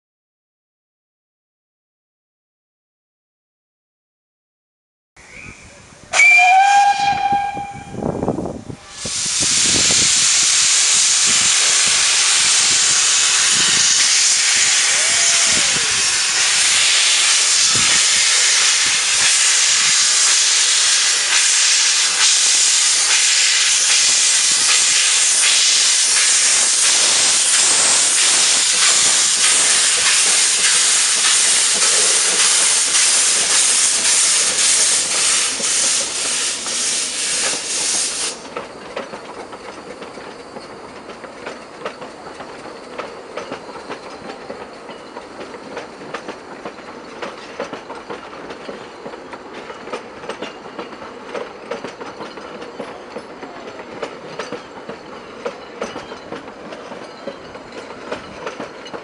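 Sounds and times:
steam locomotive whistle: 0:06.1 - 0:38.4
steam hissing: 0:08.7 - 0:59.0.

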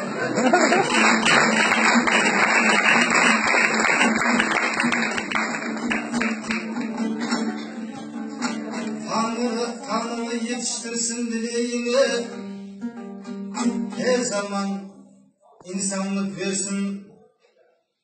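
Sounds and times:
audience applause: 0:00.0 - 0:07.6
dombra strumming: 0:00.0 - 0:14.9.

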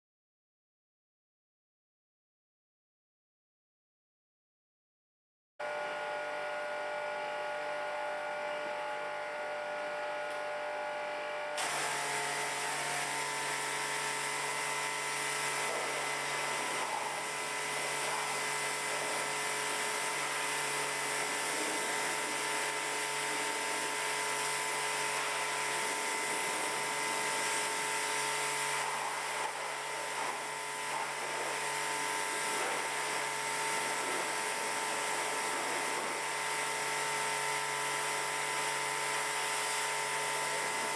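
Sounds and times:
pressure washer motor whine: 0:05.6 - 0:40.9
high-pressure water spray hissing: 0:11.6 - 0:40.9.

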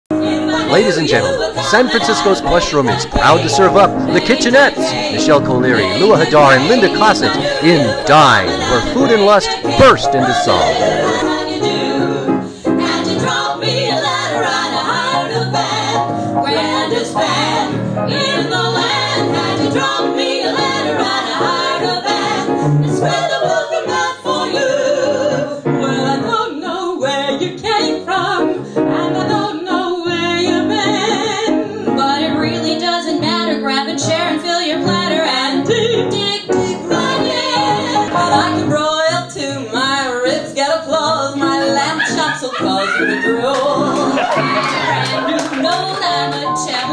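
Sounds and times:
piano accompaniment: 0:00.1 - 0:46.9
women singing together: 0:00.1 - 0:46.9.

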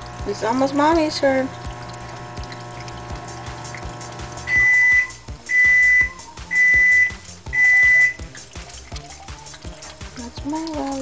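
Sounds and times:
electronic beeper: 0:04.5 - 0:08.2.

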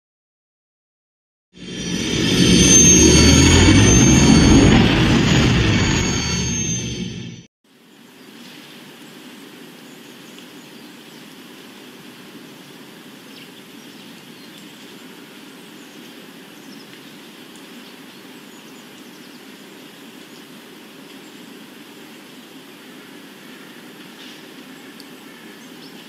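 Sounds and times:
music sting: 0:01.6 - 0:07.5
outdoor ambience noise: 0:01.6 - 0:26.0.

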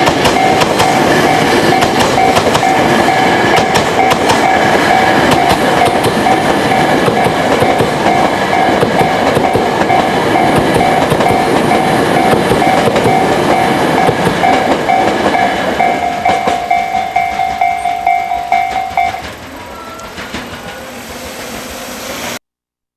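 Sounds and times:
train wheels clattering over joints: 0:00.0 - 0:21.7
approaching train rumble: 0:00.0 - 0:22.4
level crossing bell dinging: 0:15.8 - 0:19.3.

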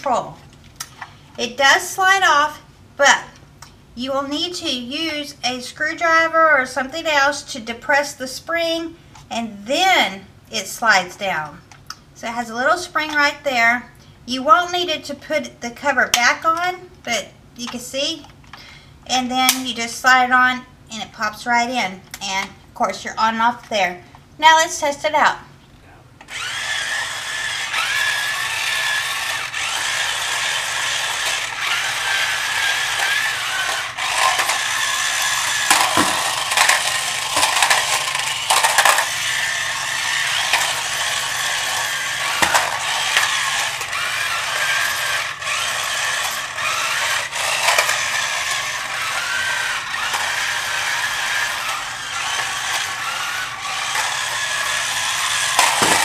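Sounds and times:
toy car motor whirring: 0:26.2 - 0:56.0
toy car clacking and knocking: 0:26.3 - 0:56.0.

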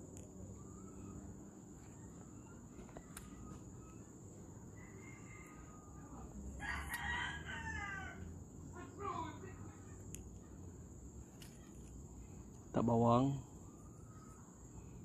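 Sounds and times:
faint bird calls: 0:00.4 - 0:06.4, 0:07.7 - 0:15.0
rooster crowing: 0:04.6 - 0:08.4.

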